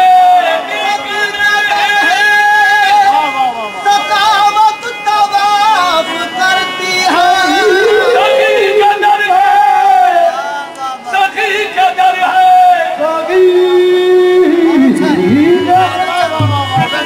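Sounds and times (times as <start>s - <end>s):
accompanying music: 3.8s - 10.4s, 13.2s - 17.0s
man singing: 3.9s - 17.0s.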